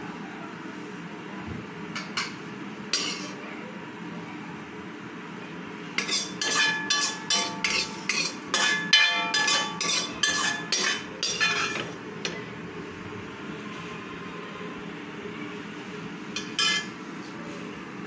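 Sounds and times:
metal ladle clanking against wok: 0:03.0 - 0:03.4, 0:06.0 - 0:12.4, 0:16.4 - 0:17.0.

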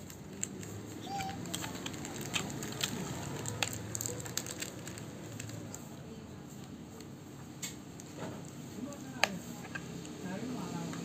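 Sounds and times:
plastic parts clicking: 0:00.0 - 0:05.8.

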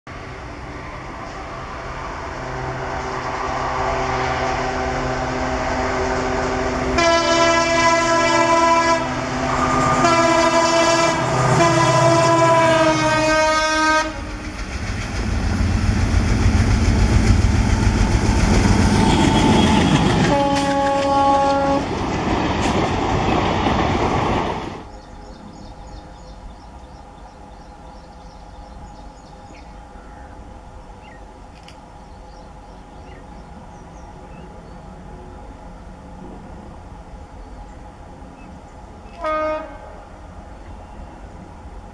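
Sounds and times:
distant diesel hum: 0:00.1 - 0:24.2
diesel locomotive passing: 0:00.1 - 0:41.9
train horn blast: 0:02.3 - 0:14.4, 0:17.8 - 0:22.0, 0:39.1 - 0:40.1.

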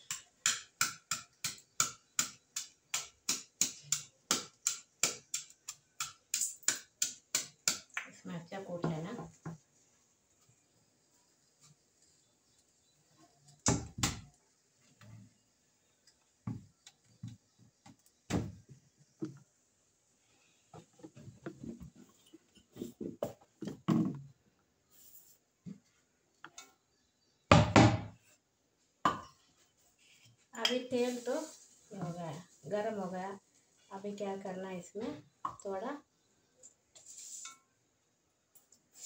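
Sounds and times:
kitchen items knocking and thudding: 0:16.4 - 0:19.5, 0:20.8 - 0:24.4, 0:27.5 - 0:28.2.

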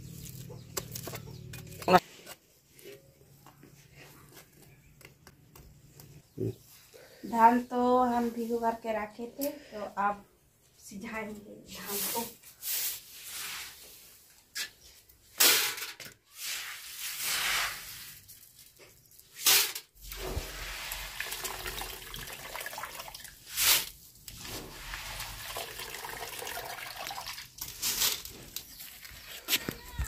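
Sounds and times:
hand broom sweeping grain: 0:11.8 - 0:14.2, 0:16.3 - 0:18.4, 0:20.2 - 0:21.2, 0:23.5 - 0:25.4
wet grain rustling: 0:16.4 - 0:19.3, 0:20.0 - 0:29.6
water dripping and trickling: 0:20.3 - 0:23.5, 0:25.0 - 0:27.8.

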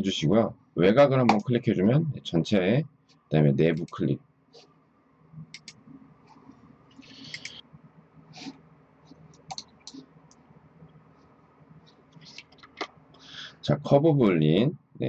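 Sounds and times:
low steady hum: 0:00.0 - 0:15.0
computer mouse clicks: 0:05.5 - 0:07.6, 0:09.2 - 0:10.4.

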